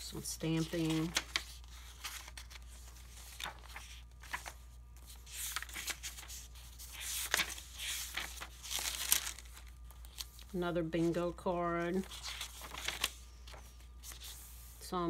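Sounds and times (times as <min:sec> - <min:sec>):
paper rustling and crinkling: 0:00.1 - 0:14.8
pages turning: 0:00.4 - 0:14.8.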